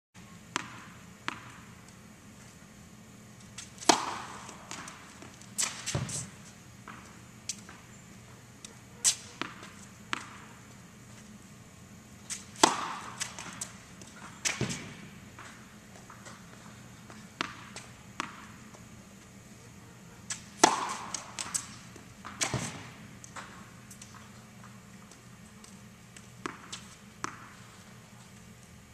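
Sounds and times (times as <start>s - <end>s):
racket striking ball: 0.5s - 1.8s, 3.6s - 6.3s, 9.0s - 10.6s, 12.3s - 16.4s, 17.3s - 18.6s, 20.3s - 23.6s, 26.4s - 27.6s
tennis ball bouncing on court: 0.5s - 1.8s, 3.6s - 7.8s, 9.0s - 10.6s, 12.3s - 18.8s, 20.3s - 24.2s, 26.2s - 27.7s.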